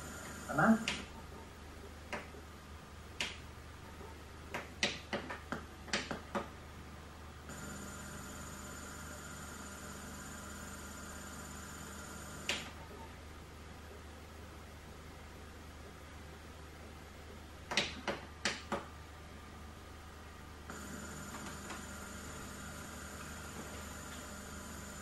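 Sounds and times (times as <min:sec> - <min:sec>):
steady hum: 0:00.0 - 0:04.9, 0:05.6 - 0:17.7, 0:18.3 - 0:25.0
sharp clicks: 0:03.2 - 0:03.4.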